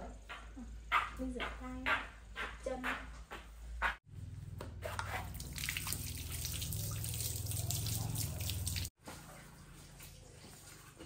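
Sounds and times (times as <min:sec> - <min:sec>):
hands washing under water: 0:04.9 - 0:09.0
water running from a tap: 0:05.2 - 0:09.0.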